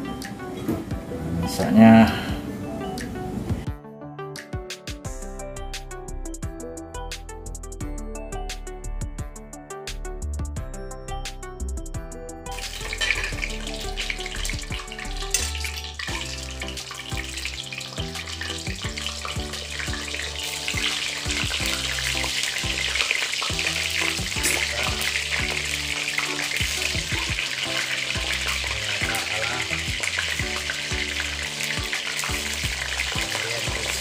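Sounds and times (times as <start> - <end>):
eggplant sizzling in hot oil: 12.5 - 34.0.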